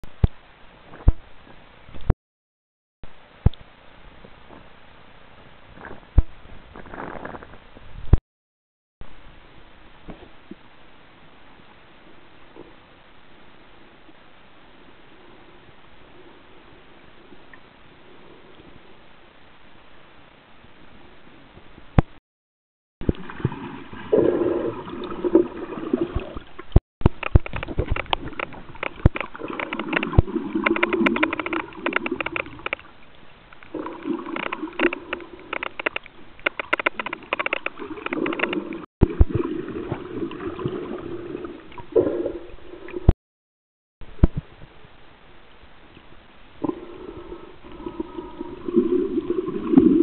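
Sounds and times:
water gurgling and sloshing: 0:23.0 - 0:43.2, 0:46.5 - 0:50.0
sharp crackling clicks: 0:26.6 - 0:32.9, 0:33.5 - 0:38.9.

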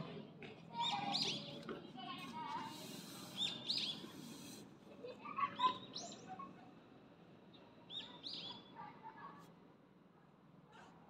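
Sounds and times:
small birds chirping: 0:02.8 - 0:04.5.

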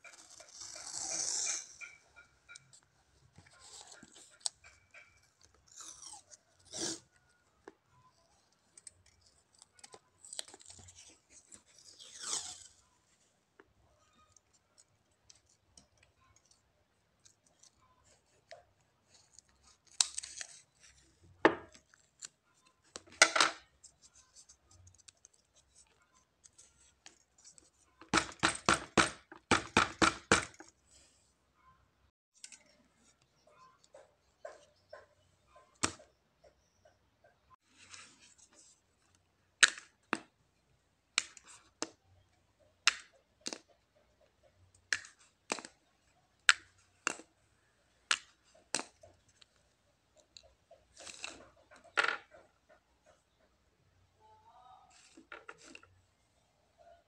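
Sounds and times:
markers rustling and clicking: 0:14.2 - 0:29.4, 0:41.1 - 0:53.6.

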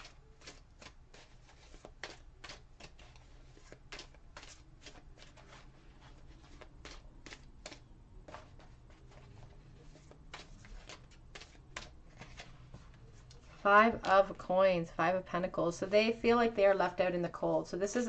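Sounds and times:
cards being shuffled: 0:00.0 - 0:14.4.

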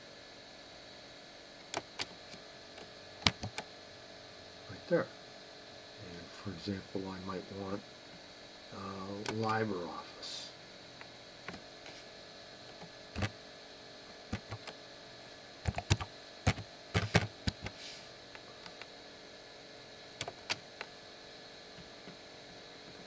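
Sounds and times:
faint steady hum: 0:00.0 - 0:23.0
computer keyboard keystrokes: 0:03.2 - 0:03.6, 0:14.3 - 0:14.8, 0:15.7 - 0:17.7
mouse clicks: 0:03.2 - 0:03.6, 0:14.3 - 0:14.7.

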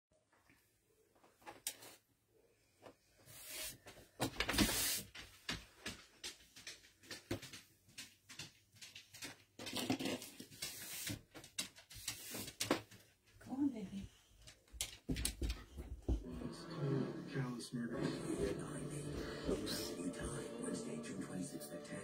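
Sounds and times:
rustling: 0:08.8 - 0:13.4.

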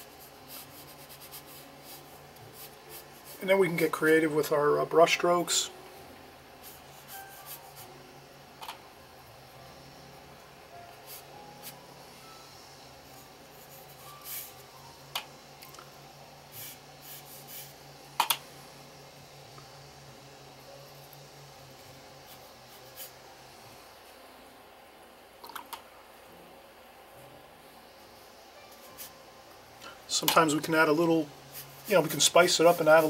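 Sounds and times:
paintbrush rubbing on paper: 0:00.0 - 0:03.9, 0:06.6 - 0:08.0, 0:11.0 - 0:11.8, 0:13.1 - 0:14.6, 0:16.5 - 0:17.8, 0:22.2 - 0:23.3, 0:30.8 - 0:33.0.

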